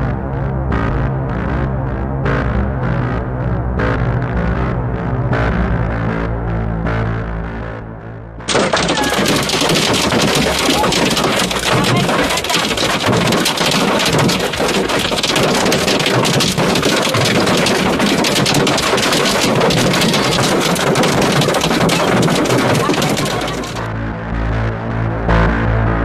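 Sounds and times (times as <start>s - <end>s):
hail and rain on car: 8.5s - 23.9s.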